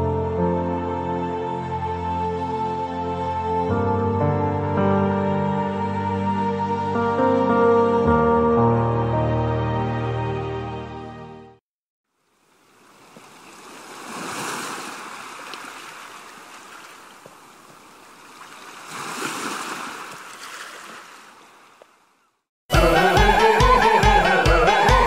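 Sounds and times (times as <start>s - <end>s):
ocean waves washing in: 12.5s - 21.5s.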